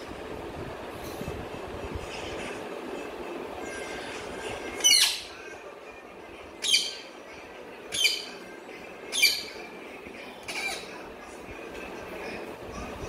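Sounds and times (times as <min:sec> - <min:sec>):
parakeet shrill calls: 0:04.8 - 0:05.4, 0:06.6 - 0:07.2, 0:07.9 - 0:08.4, 0:09.1 - 0:09.7.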